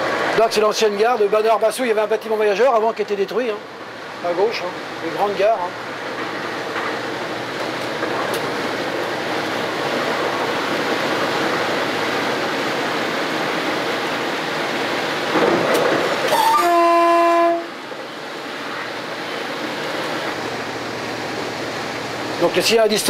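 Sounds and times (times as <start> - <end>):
train cab running noise: 0.0 - 23.0
train horn: 16.3 - 17.8.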